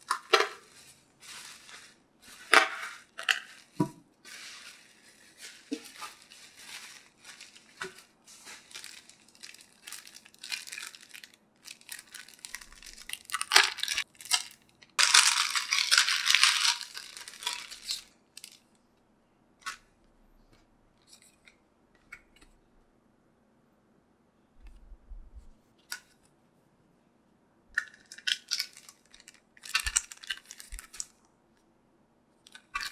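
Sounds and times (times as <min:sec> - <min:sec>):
plastic packaging crinkling: 0:00.0 - 0:18.6, 0:27.8 - 0:31.2, 0:32.5 - 0:32.9.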